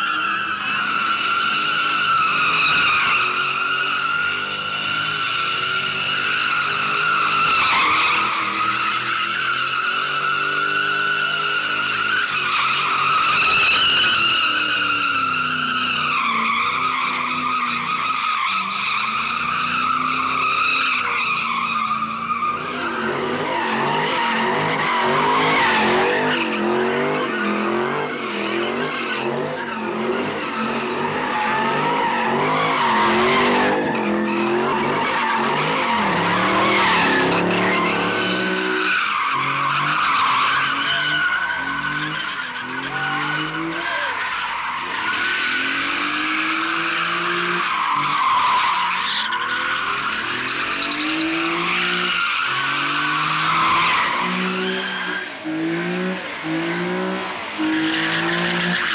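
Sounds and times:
tyres squealing: 0.0 - 58.9
car engine revving: 22.0 - 48.6, 49.4 - 58.9.

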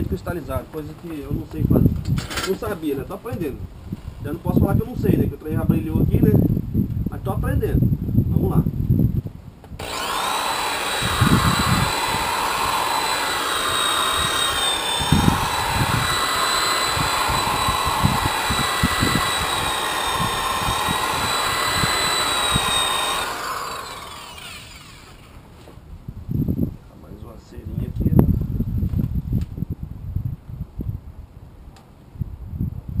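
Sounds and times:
electric polisher whining: 9.8 - 25.4.

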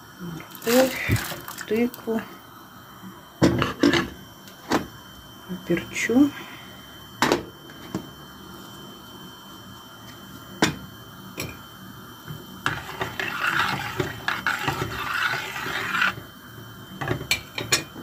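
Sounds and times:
liquid swishing in pot: 12.6 - 16.3.

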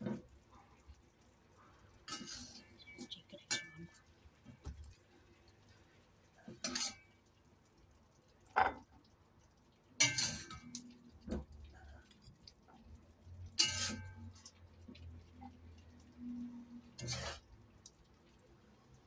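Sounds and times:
crockery clinking: 10.0 - 10.8, 13.6 - 14.3.

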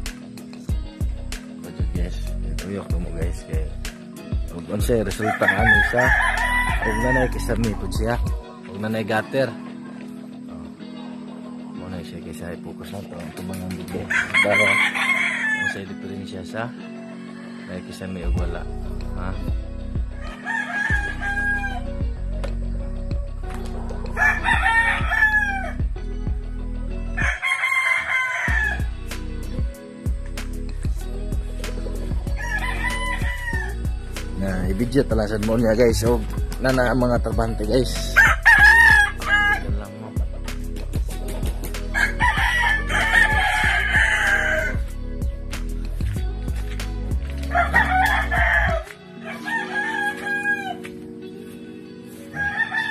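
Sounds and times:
music with thumping beat: 0.0 - 6.8, 7.5 - 8.5, 19.5 - 20.2, 22.0 - 26.5, 28.5 - 49.0
rooster crowing: 5.2 - 7.5, 14.1 - 15.8, 20.2 - 22.0, 24.1 - 25.8, 27.2 - 29.0, 32.3 - 33.9, 38.2 - 39.7, 41.9 - 44.9, 47.5 - 50.9, 52.3 - 52.9.

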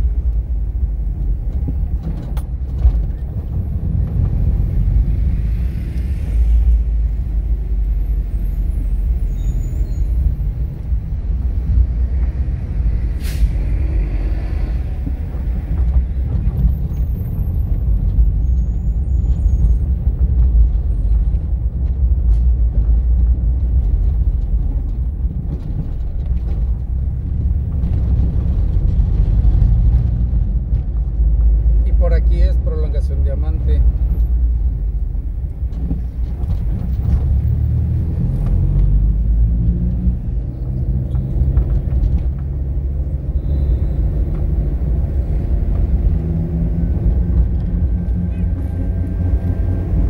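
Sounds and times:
car road and engine rumble: 0.0 - 50.0
brief sharp hiss: 13.2 - 13.7.

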